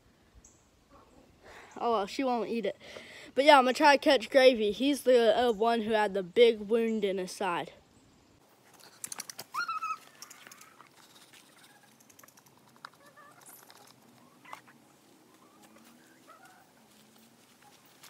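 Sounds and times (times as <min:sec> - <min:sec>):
chickens clucking: 0:00.9 - 0:01.4, 0:08.8 - 0:16.9
sharp clicks: 0:08.8 - 0:10.8.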